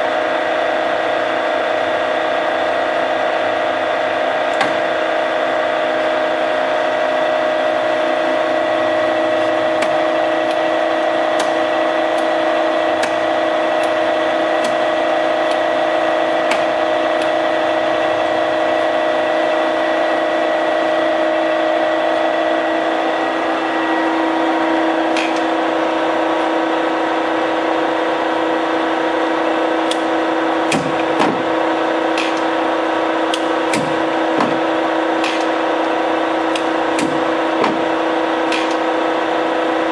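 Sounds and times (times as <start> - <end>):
lathe motor hum and whine: 0.0 - 39.9.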